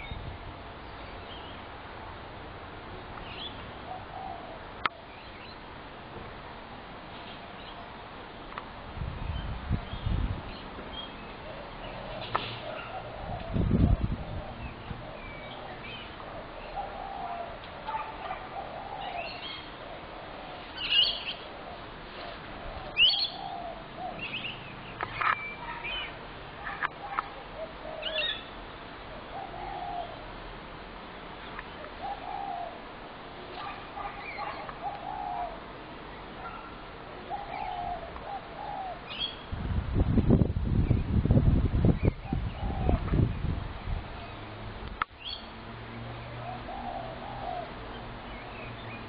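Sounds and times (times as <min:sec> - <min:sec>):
doves cooing: 0:03.8 - 0:05.1, 0:11.4 - 0:24.6, 0:25.2 - 0:30.4, 0:31.8 - 0:39.4, 0:42.0 - 0:43.2, 0:46.3 - 0:49.0.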